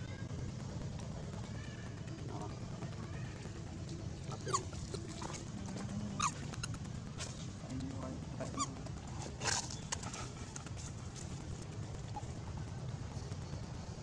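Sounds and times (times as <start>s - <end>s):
low background noise: 0.0s - 14.0s
monkeys squeaking: 4.3s - 5.2s, 6.0s - 6.9s, 8.4s - 10.7s.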